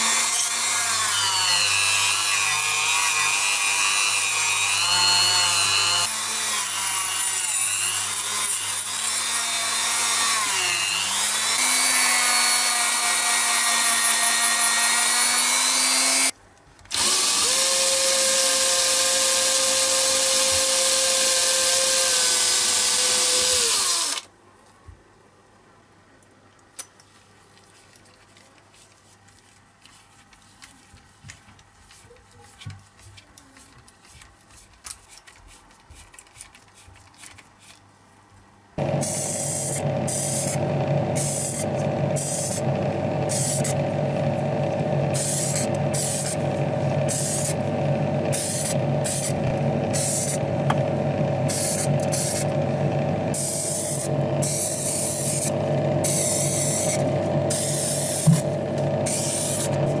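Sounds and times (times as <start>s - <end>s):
machine hum: 38.8s - 60.0s
spray paint hissing: 39.0s - 40.6s, 41.2s - 42.6s, 43.3s - 43.8s, 45.2s - 46.4s, 47.1s - 47.6s, 48.3s - 49.4s, 50.0s - 50.4s, 51.5s - 52.4s, 53.3s - 58.4s.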